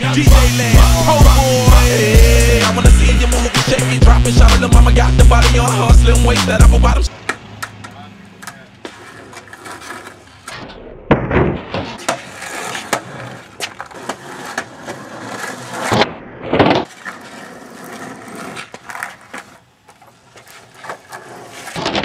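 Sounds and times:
skateboard wheels rolling on asphalt: 4.4 - 22.0
skateboard clacking on ground: 7.1 - 22.0.

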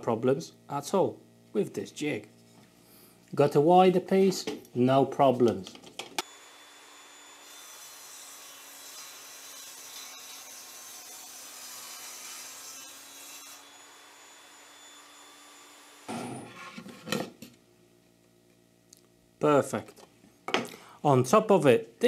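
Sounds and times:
table saw motor hum: 6.2 - 17.3
table saw blade cutting chipboard: 6.2 - 17.4.

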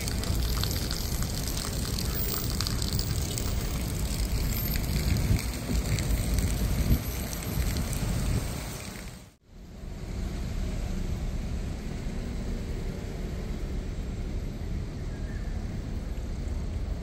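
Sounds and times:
fountain water splashing: 0.0 - 9.4.

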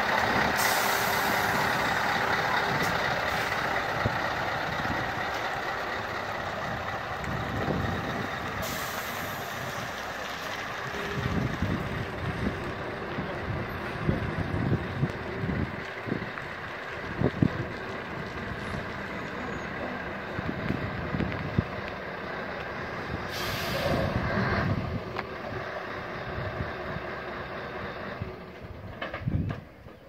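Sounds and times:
truck diesel engine running: 0.0 - 30.0
air brake hiss: 0.6 - 1.6, 8.6 - 9.6, 23.3 - 24.2.

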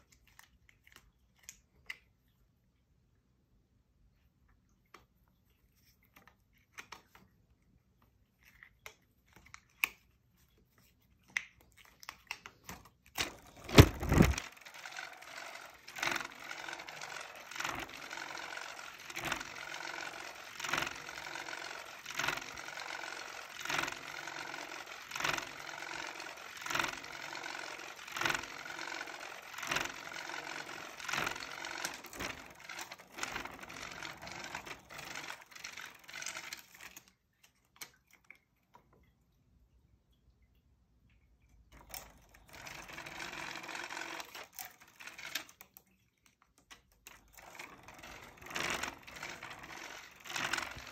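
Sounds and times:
toy wire arm clicking: 11.3 - 37.2, 41.7 - 45.8, 46.7 - 50.9
toy motor whirring: 11.8 - 37.2, 41.7 - 45.8, 46.7 - 50.9.

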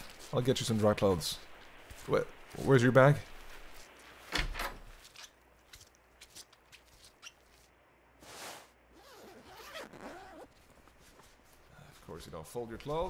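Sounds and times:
fabric rustling: 3.2 - 13.0.

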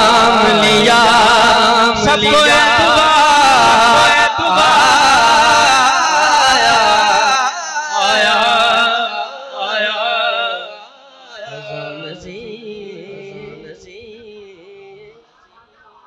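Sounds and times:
man singing through loudspeakers: 0.0 - 16.0
softer voice: 15.2 - 16.0.

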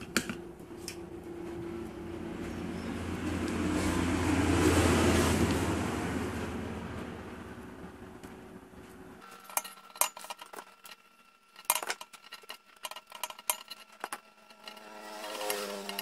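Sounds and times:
plastic parts clicking and tapping: 9.2 - 16.0.

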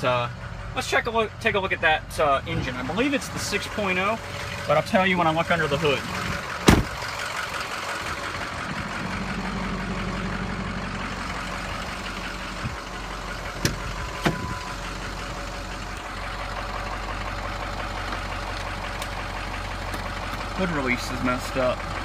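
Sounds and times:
engine idling: 0.0 - 22.0
truck door latch clicks: 13.6 - 14.4.

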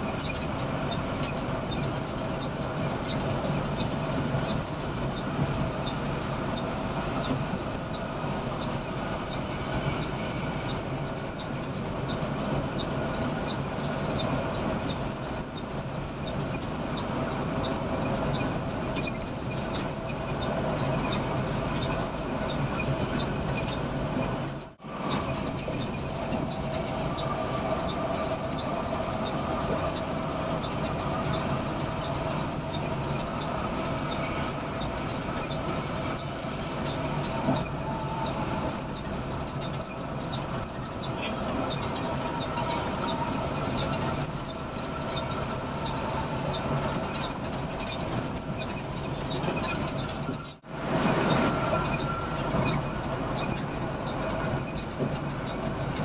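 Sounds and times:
coach engine and road noise: 0.0 - 56.0
faint high whistle: 41.2 - 44.3.

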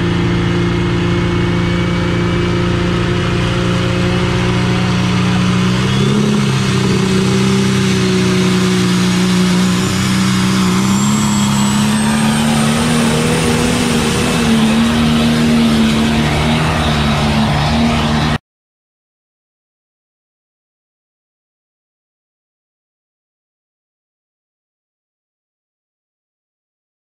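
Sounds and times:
tractor engine under load: 0.0 - 18.4.

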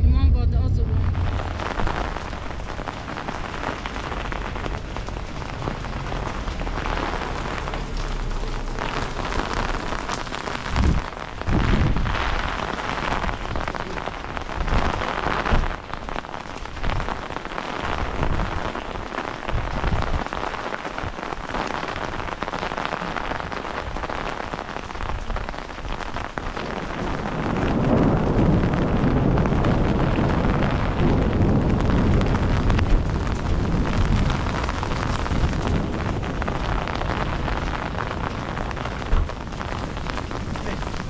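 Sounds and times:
low rumble: 0.0 - 14.8
rain on pavement and cars: 0.0 - 41.0.

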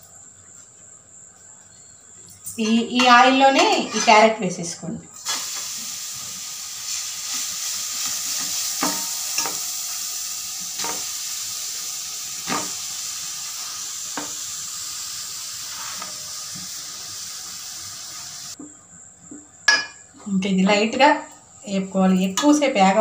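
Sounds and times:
metal spoon scraping a pan: 2.6 - 4.4, 15.6 - 16.3
carrot sizzling in a pan: 5.2 - 18.6.

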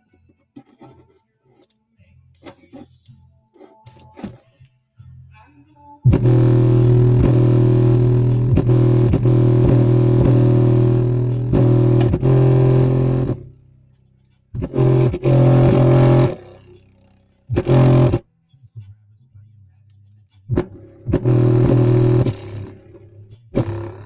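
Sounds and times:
bass-heavy music through subwoofer: 5.0 - 13.6, 14.4 - 24.0.

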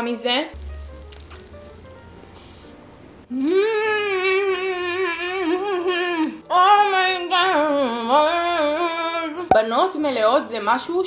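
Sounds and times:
woman humming: 3.3 - 6.4.

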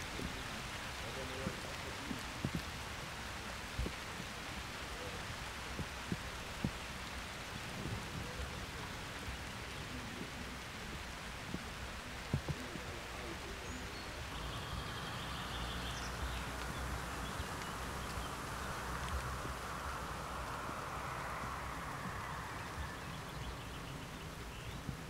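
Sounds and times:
steady hiss: 0.0 - 25.0.

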